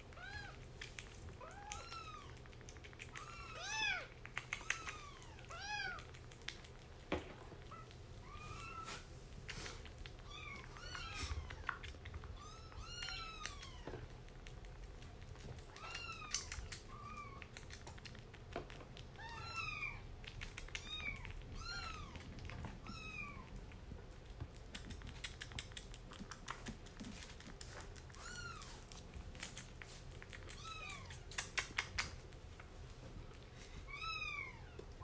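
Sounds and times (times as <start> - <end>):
kitten mewing: 30.2 - 32.0.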